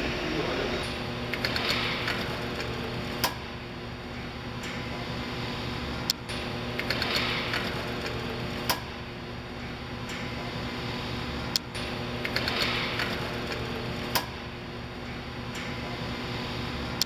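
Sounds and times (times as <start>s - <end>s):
machine hissing: 0.0s - 2.6s
machine motors humming: 0.0s - 17.0s
machine clacks: 0.8s - 3.4s, 6.2s - 8.9s, 11.6s - 14.4s.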